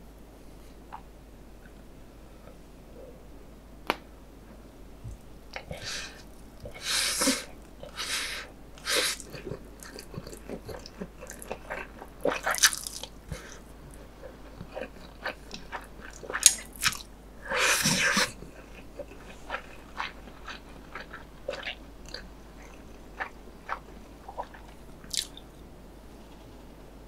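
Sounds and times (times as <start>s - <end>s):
wet chewing: 8.8s - 25.4s
person slurping noodles: 17.5s - 18.4s.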